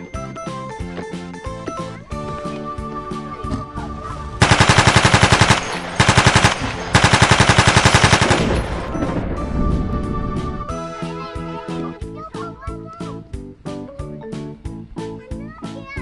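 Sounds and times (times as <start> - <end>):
background music: 0.0 - 16.0
automatic gunfire bursts: 4.4 - 8.7.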